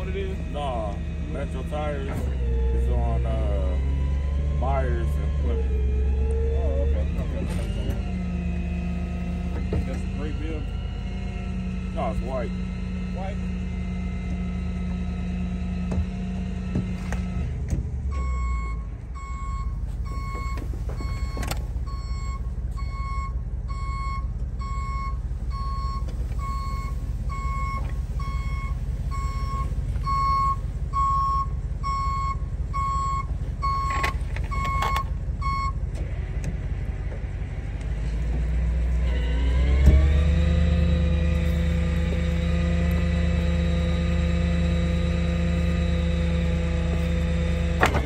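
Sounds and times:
truck backup alarm beeping: 0:00.0 - 0:36.0, 0:38.8 - 0:48.0
truck engine rumble: 0:00.0 - 0:48.0
metal clunk: 0:47.7 - 0:48.0.

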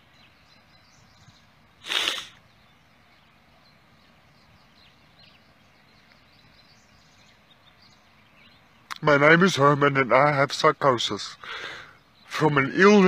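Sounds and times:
faint bird chirps: 0:00.0 - 0:10.2, 0:10.8 - 0:13.0
man's sharp noisy breath: 0:01.8 - 0:02.4, 0:11.4 - 0:12.0.

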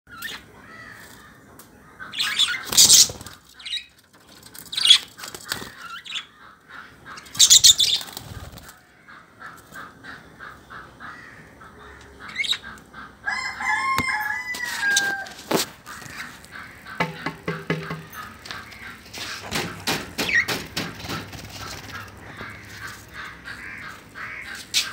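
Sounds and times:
budgerigars chirping: 0:02.0 - 0:03.9, 0:04.7 - 0:08.2, 0:10.1 - 0:13.1
wing flapping: 0:07.4 - 0:08.8, 0:17.7 - 0:24.8.

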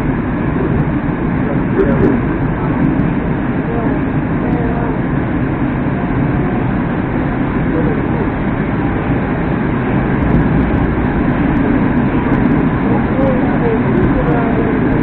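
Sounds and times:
metro train rumbling in tunnel: 0:00.0 - 0:15.0.

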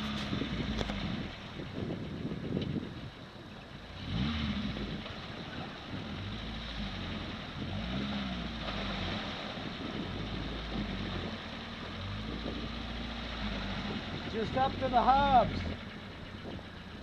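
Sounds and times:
truck engine revving: 0:00.0 - 0:02.9, 0:03.7 - 0:17.0
water splashing under tyres: 0:03.8 - 0:17.0.

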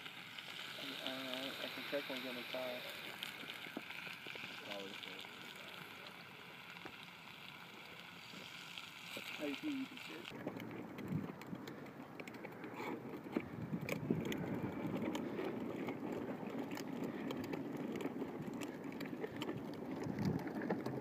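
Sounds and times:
plastic wheels rolling on asphalt: 0:00.0 - 0:21.0
small clicks and rattles: 0:00.0 - 0:21.0.

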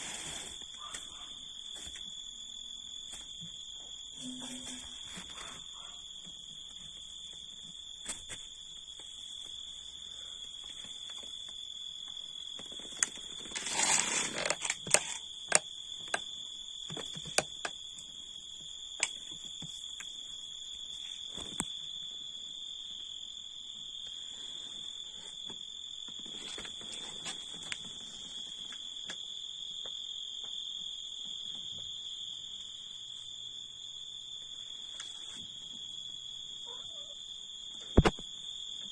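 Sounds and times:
crickets trilling: 0:00.0 - 0:38.9
rustling: 0:12.6 - 0:15.2.

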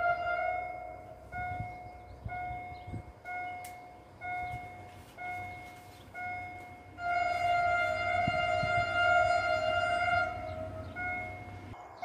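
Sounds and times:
train horn blast: 0:00.0 - 0:01.5, 0:07.0 - 0:11.7.

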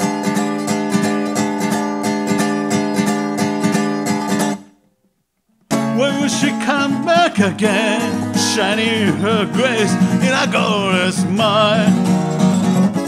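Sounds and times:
acoustic guitar strumming: 0:00.0 - 0:04.9, 0:05.6 - 0:13.0
man singing: 0:05.8 - 0:12.4.

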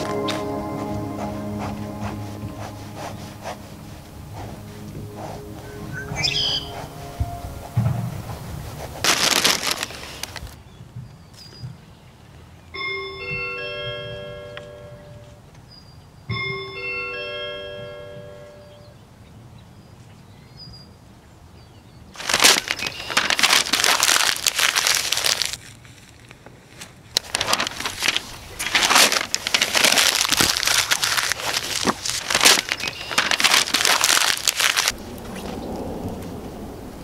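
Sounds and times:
softer lower sound: 0:00.0 - 0:10.0
close crinkling and rustling: 0:06.7 - 0:10.6, 0:22.2 - 0:35.0.

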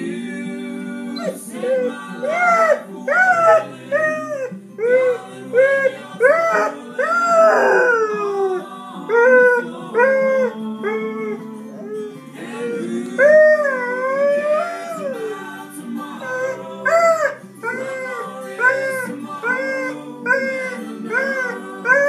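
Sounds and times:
song playing in background: 0:00.0 - 0:22.0
dog howling: 0:01.1 - 0:15.5, 0:16.2 - 0:22.0.

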